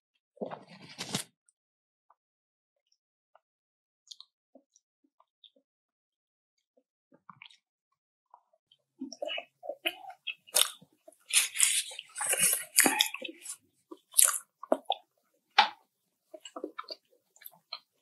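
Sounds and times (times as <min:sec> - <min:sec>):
crunching and chewing crisp food: 0:08.4 - 0:18.0.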